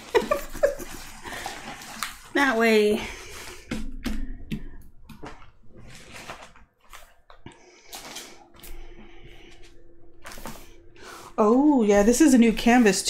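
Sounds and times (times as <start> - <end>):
plastic film rustling and crinkling: 0.0 - 3.8, 5.2 - 8.8.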